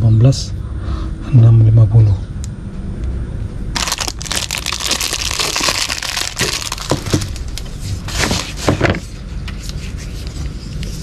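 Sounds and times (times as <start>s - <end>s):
plastic packaging crinkling: 3.8s - 9.0s.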